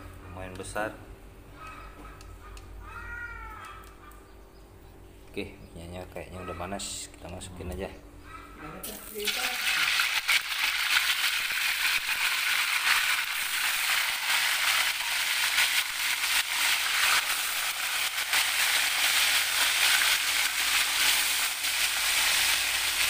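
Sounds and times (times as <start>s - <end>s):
fish deep-frying in hot oil: 8.8s - 23.0s
oil crackling and popping: 8.8s - 23.0s.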